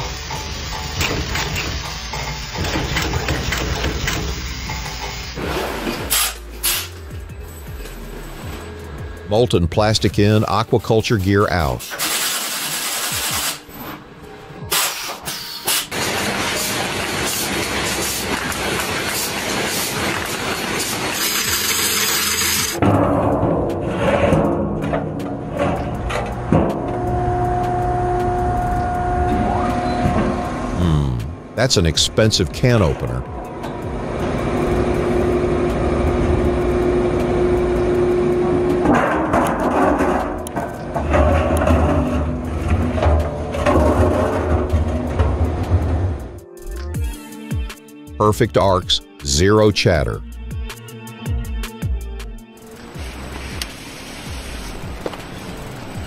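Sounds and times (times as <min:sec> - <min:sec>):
machine rushing and rattling: 0:15.9 - 0:26.8
machine humming: 0:25.4 - 0:31.6, 0:33.2 - 0:46.4.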